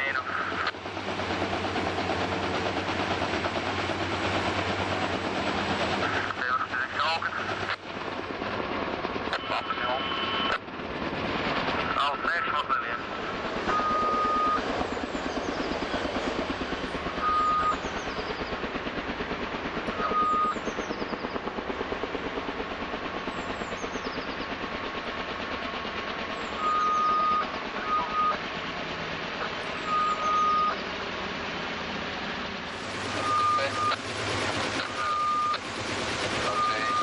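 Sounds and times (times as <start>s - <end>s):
helicopter hovering: 0.0s - 37.0s
high electronic beep: 17.2s - 17.8s, 20.1s - 20.5s, 26.6s - 28.4s, 29.8s - 30.8s, 33.2s - 34.0s, 35.0s - 35.6s, 36.5s - 37.0s.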